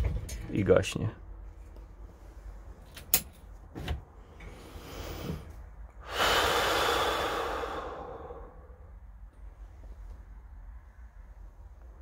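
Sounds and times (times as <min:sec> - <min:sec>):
man sighing heavily: 0:06.0 - 0:08.8.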